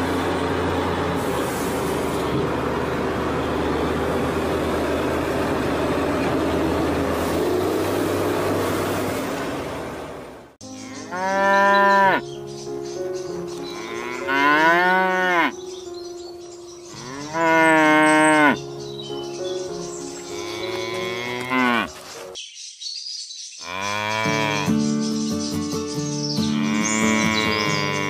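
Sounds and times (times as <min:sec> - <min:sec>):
cow mooing: 0:10.8 - 0:12.3, 0:13.6 - 0:15.6, 0:16.9 - 0:18.7, 0:20.2 - 0:22.0, 0:23.6 - 0:24.9, 0:26.4 - 0:28.0.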